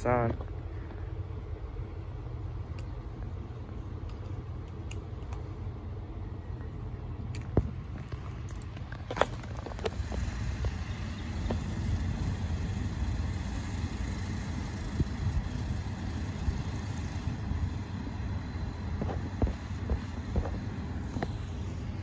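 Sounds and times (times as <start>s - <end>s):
machine engine low rumble: 0.0s - 22.0s.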